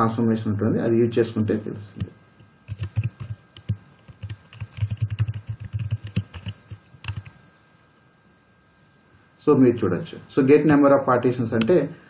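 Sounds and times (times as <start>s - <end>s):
typing on computer keyboard: 2.7s - 7.4s.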